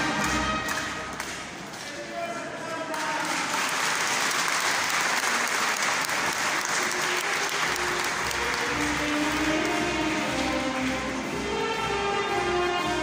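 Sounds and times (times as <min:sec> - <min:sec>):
crowd applauding: 0:00.0 - 0:11.4.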